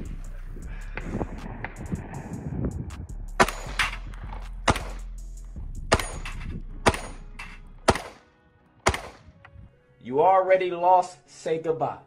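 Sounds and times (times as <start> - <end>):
pistol shots: 3.4 - 5.1, 5.9 - 9.4.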